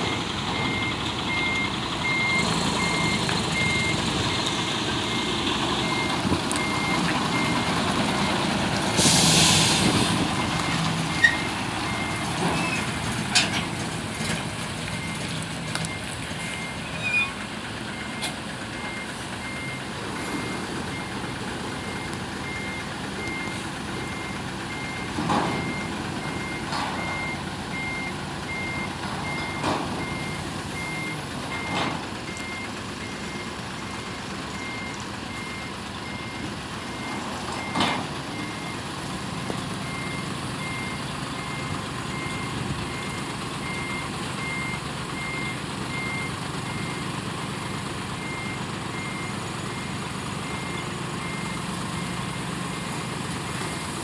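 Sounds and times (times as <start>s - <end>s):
vehicle warning beeper: 0.0s - 4.5s, 5.1s - 8.4s, 15.0s - 38.8s, 39.8s - 47.1s, 48.2s - 52.9s
diesel engines running: 0.0s - 54.0s.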